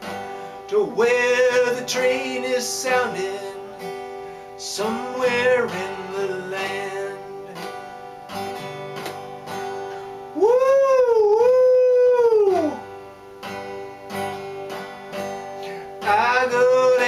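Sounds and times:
acoustic guitar strumming: 0:00.0 - 0:17.0
man singing: 0:00.6 - 0:03.9, 0:04.6 - 0:07.7, 0:15.6 - 0:17.0
man imitating train whistle: 0:10.4 - 0:12.9.

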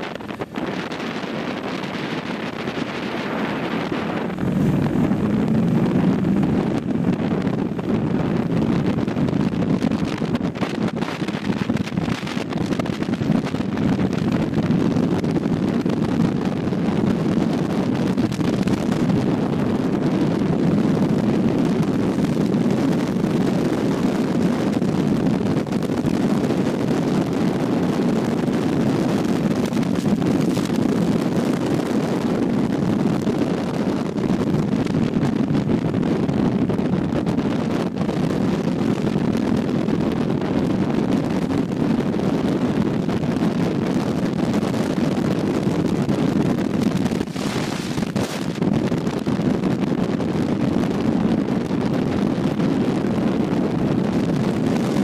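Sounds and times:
motorcycle engine running: 0:00.0 - 0:15.6
wind rushing over microphone: 0:00.0 - 0:55.0.

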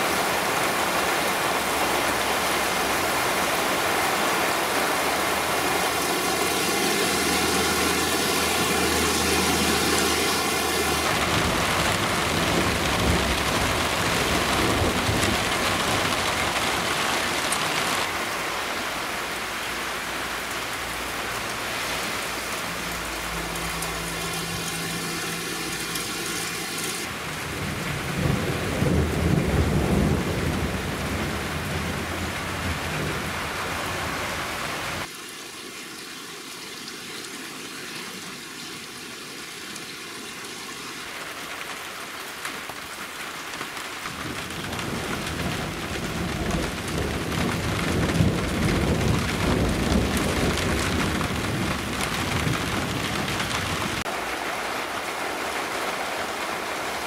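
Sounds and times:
heavy rain pouring: 0:00.0 - 0:36.0, 0:36.6 - 0:57.0
low rumble of thunder: 0:06.6 - 0:17.0, 0:27.2 - 0:33.4, 0:44.1 - 0:54.0.

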